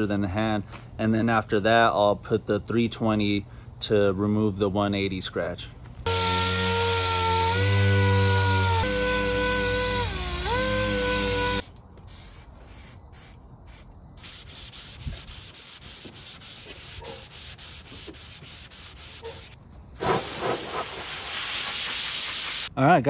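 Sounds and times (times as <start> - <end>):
compressed air hissing: 8.8 - 22.7
hand sanding scrapes: 14.2 - 20.9.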